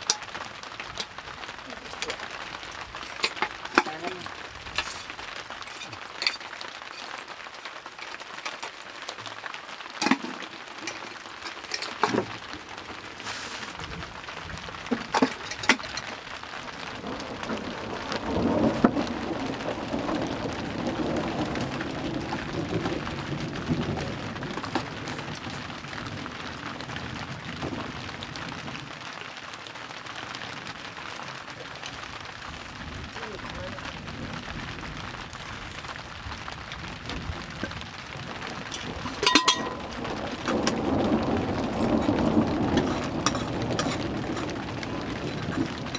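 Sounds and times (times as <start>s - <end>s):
metal pots and lid clinking: 2.9s - 7.1s, 10.0s - 12.3s, 15.0s - 16.1s, 38.8s - 40.0s, 42.8s - 44.5s
fire hissing: 13.0s - 13.9s
water poured into a pot: 38.7s - 40.8s.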